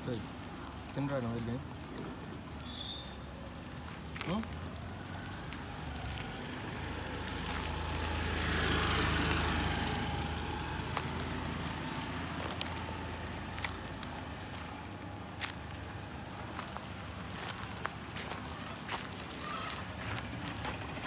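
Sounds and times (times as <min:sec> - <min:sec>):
vehicle passing: 0:04.8 - 0:21.0.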